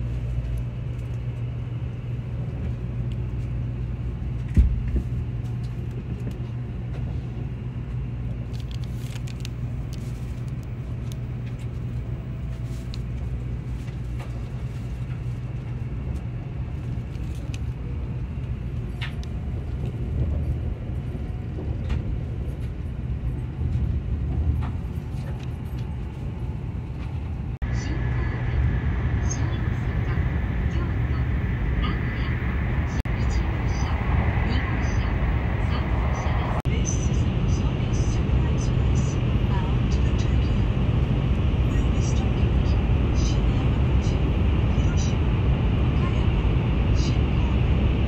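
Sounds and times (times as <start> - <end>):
train interior rumble and hum: 0.0 - 48.0.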